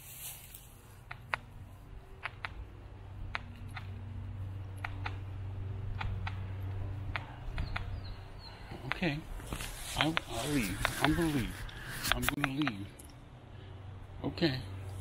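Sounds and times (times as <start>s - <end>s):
owl snapping its bill: 10.0s - 11.2s.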